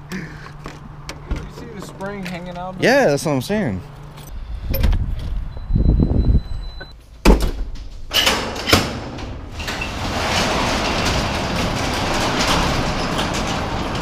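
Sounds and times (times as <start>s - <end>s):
metal garage door rattling: 7.3s - 14.0s
metal clanks: 7.7s - 14.0s.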